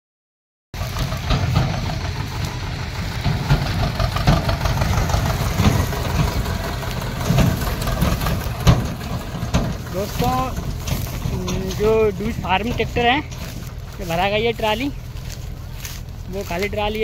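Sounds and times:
tractor diesel engine throbbing: 0.8s - 17.0s.

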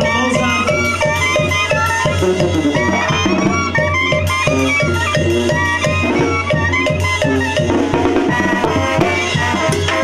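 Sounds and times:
clarinets playing melody: 0.0s - 10.0s
snare drum and cymbals: 0.0s - 10.0s
trumpets: 0.0s - 10.0s.

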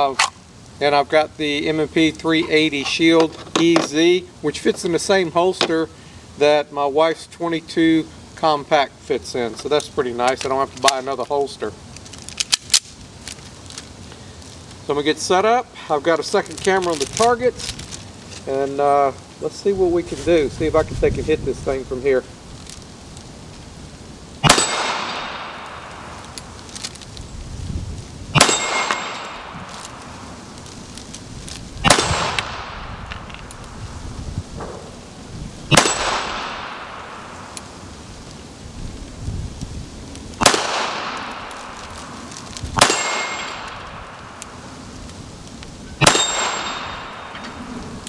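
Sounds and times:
pistol shots: 24.4s - 26.2s, 28.4s - 30.0s, 31.8s - 33.0s, 35.7s - 37.4s, 40.4s - 41.8s, 42.8s - 44.4s, 46.0s - 47.4s
steel plate clanging: 28.4s - 29.5s, 42.8s - 43.8s, 46.0s - 47.8s.

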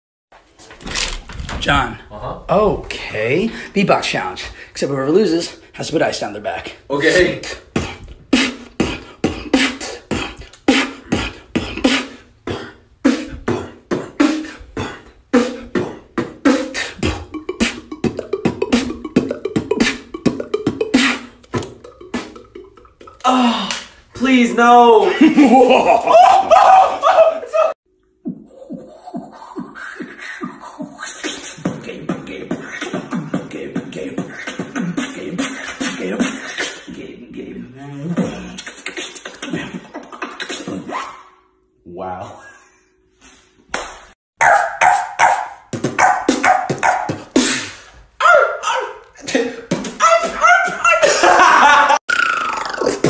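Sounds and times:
man beatboxing: 6.8s - 24.0s, 28.3s - 41.1s, 45.7s - 48.0s, 49.2s - 53.0s.

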